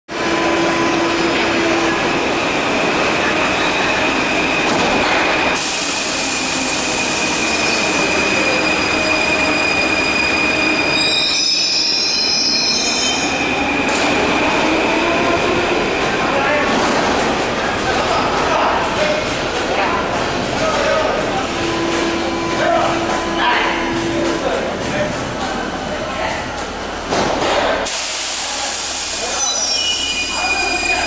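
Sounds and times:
high whine of train: 0.1s - 31.0s
train rumbling: 0.1s - 31.0s
train wheels squealing: 6.6s - 14.1s, 29.2s - 31.0s.

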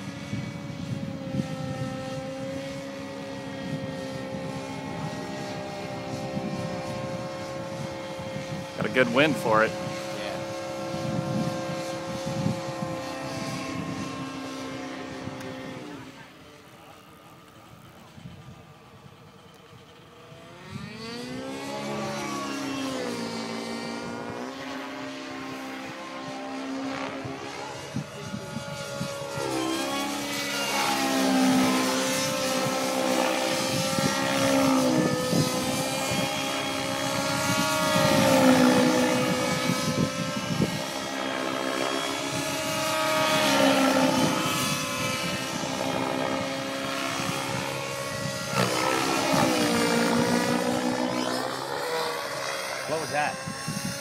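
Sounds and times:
model helicopter engine and rotor drone: 0.0s - 54.0s.

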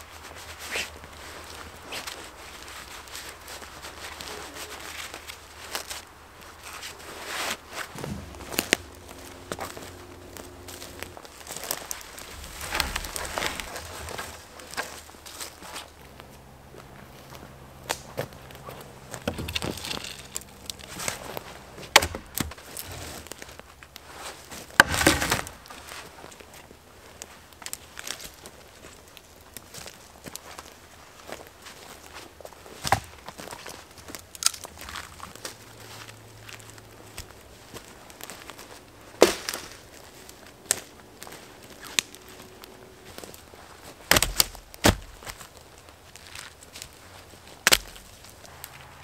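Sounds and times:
fabric rustling and scuffing: 0.0s - 26.4s
branch crunching rattle: 0.0s - 49.0s
footsteps on twigs and leaves: 0.0s - 49.0s
dead wood knocking and cracking: 7.9s - 15.4s, 17.8s - 23.5s, 24.6s - 25.8s, 32.8s - 35.6s, 39.2s - 40.0s, 44.0s - 46.9s, 47.6s - 48.4s.

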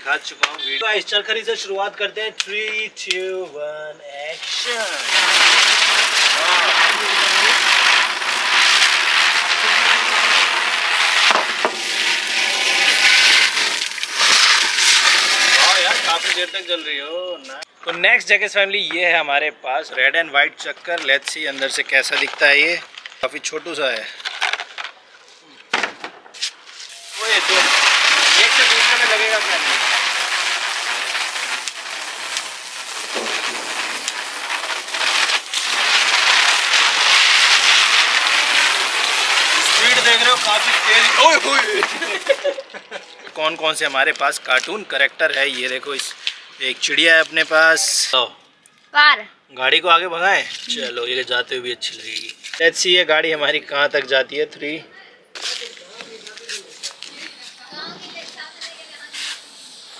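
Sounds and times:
spinning firecracker hissing: 4.3s - 17.0s, 26.4s - 42.6s, 55.4s - 59.9s
firecracker pops: 4.6s - 16.4s, 25.7s - 42.5s.

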